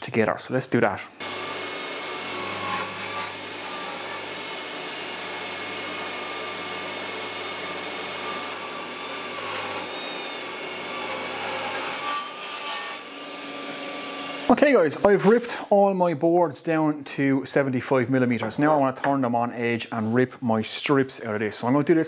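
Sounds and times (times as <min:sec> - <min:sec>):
table saw ripping a board: 0:01.2 - 0:14.5.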